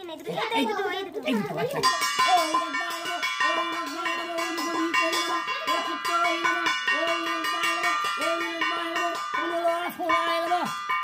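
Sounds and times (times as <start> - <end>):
hand bell ringing rapidly: 1.7 - 11.0
person chanting: 2.2 - 10.7.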